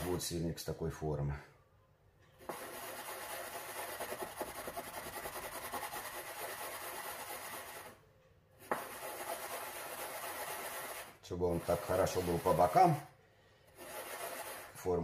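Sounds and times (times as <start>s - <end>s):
metal ring scraping on board: 8.6s - 13.0s, 13.7s - 15.0s.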